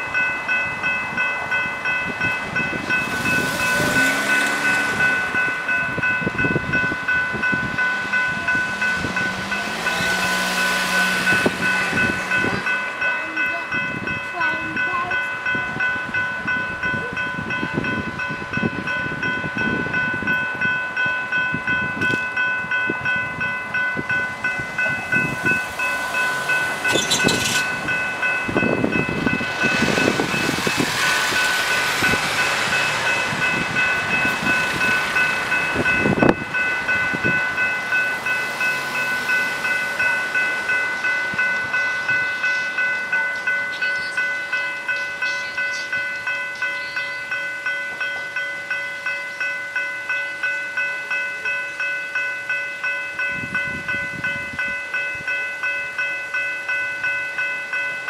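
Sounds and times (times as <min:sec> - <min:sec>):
level crossing bells ringing: 0:00.0 - 0:58.0
passing traffic: 0:00.0 - 0:58.0.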